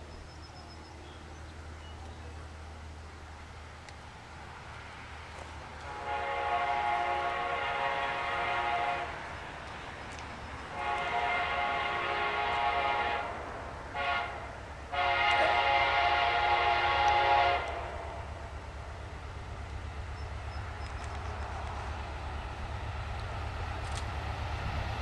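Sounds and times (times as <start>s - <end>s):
distant train horn blasts: 5.8s - 9.5s, 10.4s - 19.4s.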